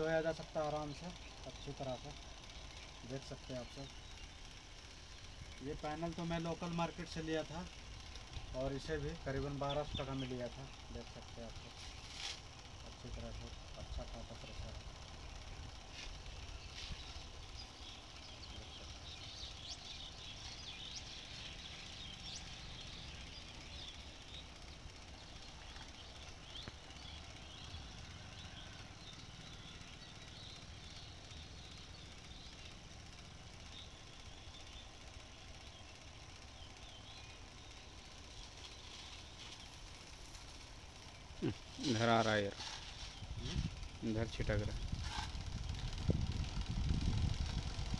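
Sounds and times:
electric pump running: 0:00.0 - 0:47.9
high chirps: 0:00.0 - 0:47.9.

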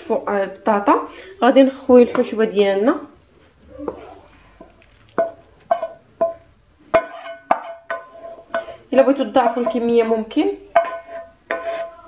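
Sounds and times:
spoon knocking on frying pan: 0:04.6 - 0:11.9.

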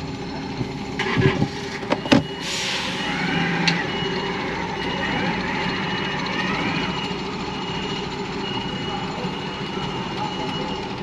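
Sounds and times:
diesel truck engine rumbling: 0:00.0 - 0:11.0
high beep: 0:03.7 - 0:11.0.

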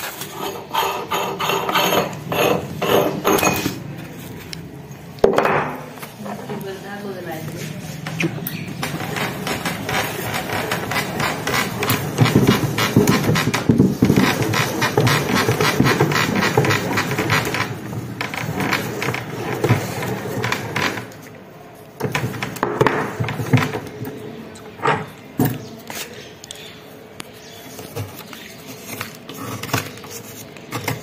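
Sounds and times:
metal and plastic scraping and rattling: 0:08.0 - 0:21.3, 0:22.0 - 0:24.2, 0:27.7 - 0:31.0.

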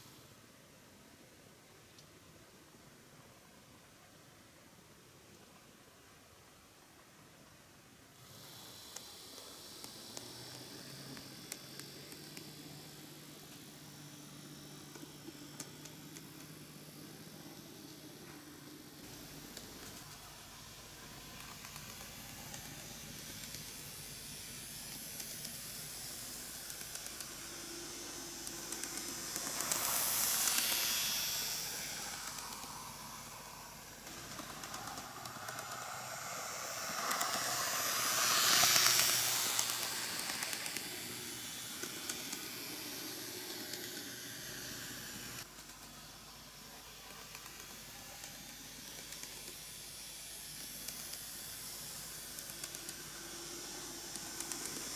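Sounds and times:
model train motor whirring: 0:08.1 - 0:54.9.

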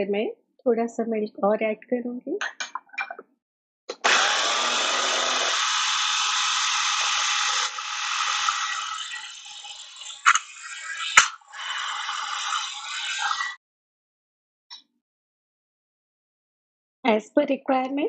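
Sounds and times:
food processor motor running: 0:03.9 - 0:13.6.

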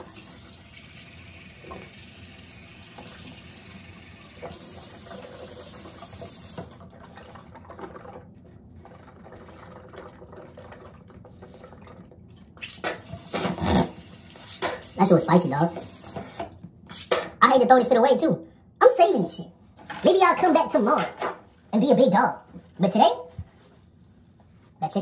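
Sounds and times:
faucet running into sink: 0:00.0 - 0:08.3.

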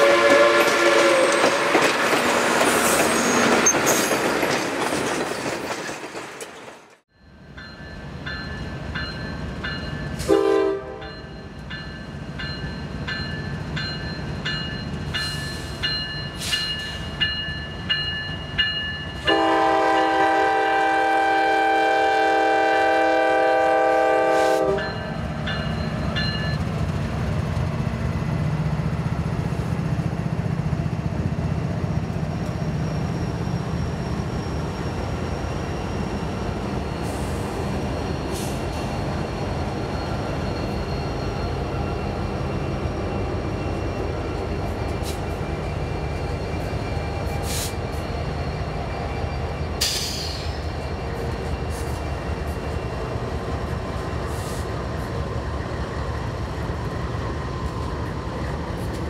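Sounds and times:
locomotive horn: 0:00.0 - 0:01.8, 0:10.2 - 0:11.1, 0:19.2 - 0:25.0
train rolling past: 0:00.0 - 0:59.0.

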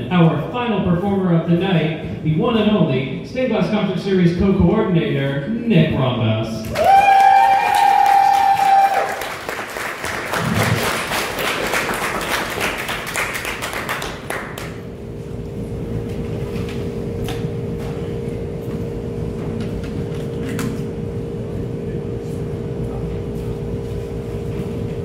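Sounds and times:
steady hum: 0:00.0 - 0:25.0
crowd cheering: 0:06.6 - 0:14.0
audience applause: 0:06.6 - 0:14.8.

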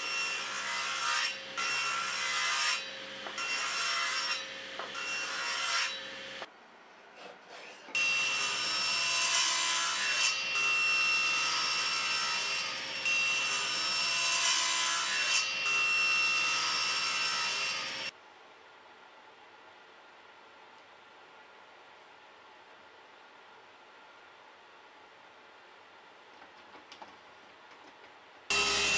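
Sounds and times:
table saw cutting wood: 0:00.0 - 0:06.5, 0:07.2 - 0:18.1, 0:28.5 - 0:28.9.

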